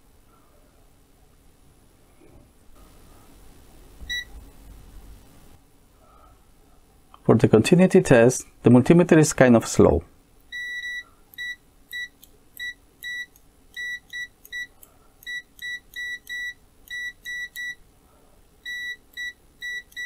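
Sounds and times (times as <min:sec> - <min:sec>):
multimeter continuity beeps: 0:04.1 - 0:04.3, 0:10.5 - 0:17.8, 0:18.6 - 0:20.0.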